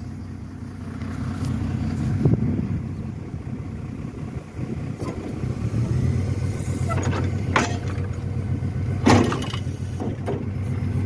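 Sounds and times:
garbage truck engine droning: 0:00.0 - 0:11.0
rear loader knocks: 0:06.9 - 0:08.2, 0:09.0 - 0:10.6.

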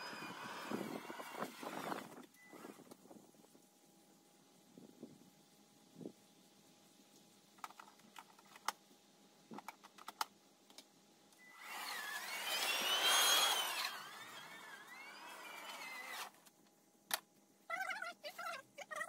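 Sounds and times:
electric lawn mower motor whine: 0:00.0 - 0:03.0, 0:11.4 - 0:16.5.

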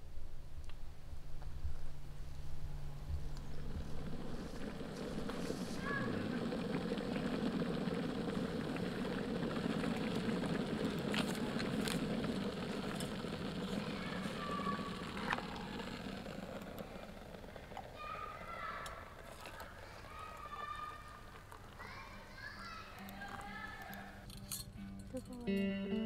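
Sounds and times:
electric kettle rumbling: 0:00.7 - 0:21.8
water pouring into mug: 0:03.6 - 0:17.9.

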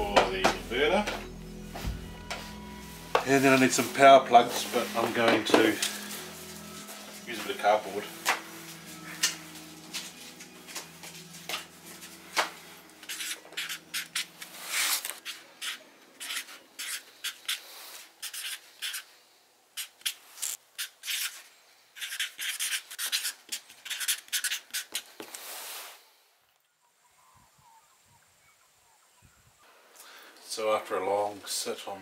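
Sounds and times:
marker scratching on cardboard: 0:13.0 - 0:19.1, 0:19.8 - 0:21.4, 0:22.0 - 0:25.1.

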